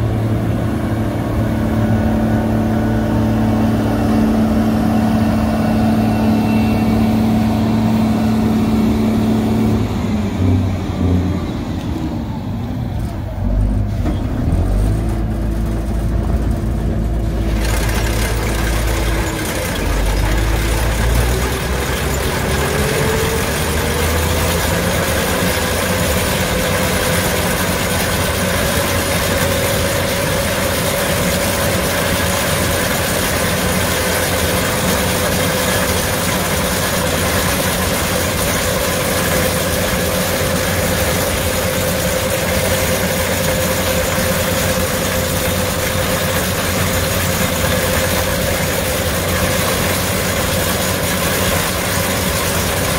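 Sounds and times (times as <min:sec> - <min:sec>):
combine harvester mechanical rush: 0:00.0 - 0:52.9
machine whine rising in pitch: 0:00.5 - 0:13.7, 0:17.5 - 0:32.9.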